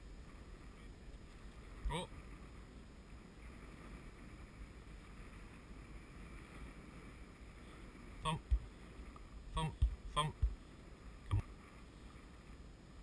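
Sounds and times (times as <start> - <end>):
faint sea noise: 0.0 - 13.0
wind rumbling on microphone: 0.0 - 13.0
low thump: 8.4 - 8.7, 9.8 - 10.6.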